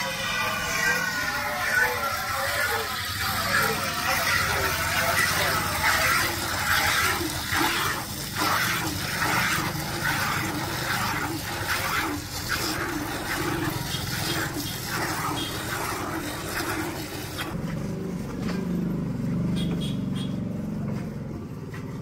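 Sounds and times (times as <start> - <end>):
milk squirting into a pail: 1.9 - 17.6.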